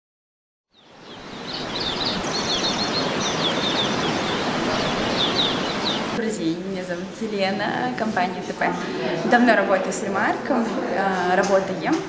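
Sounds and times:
birds chirping and trilling: 0.7 - 6.2
steady rushing background: 1.2 - 6.2.

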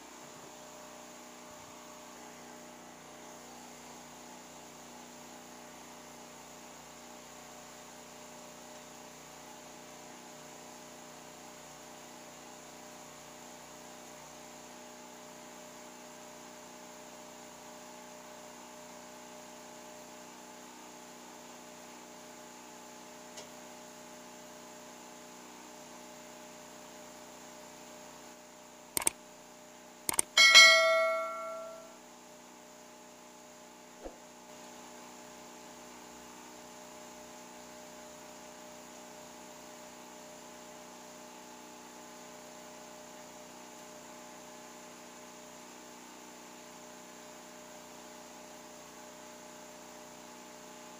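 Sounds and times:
sharp clicks: 30.1 - 30.4
steady background hum: 30.1 - 31.9
metallic ring: 30.1 - 32.0.

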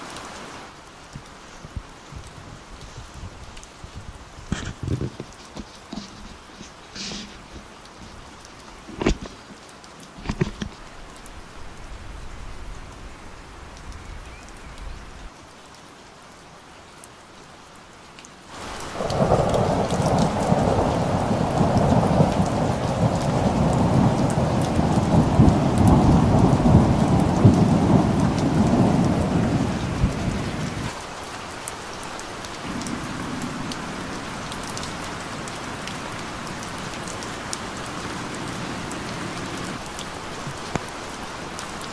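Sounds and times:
rain falling: 0.0 - 41.9
thunder rumbling: 18.7 - 31.0, 32.6 - 40.8.

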